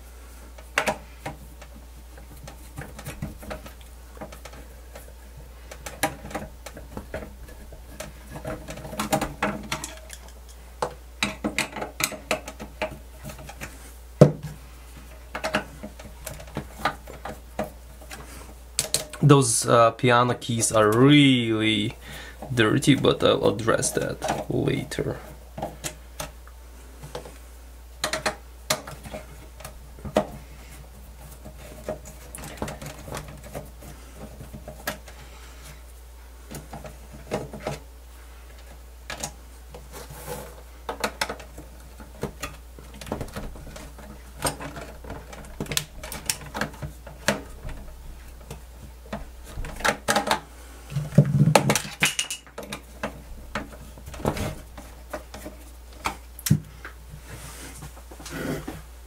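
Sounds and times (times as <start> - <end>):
clatter of parts: 5.7 - 13.7, 49.4 - 55.7.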